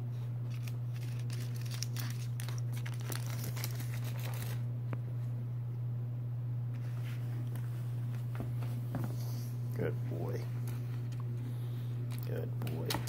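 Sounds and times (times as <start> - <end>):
steady low hum: 0.0 - 13.0
paper and pads crinkling: 0.5 - 4.7.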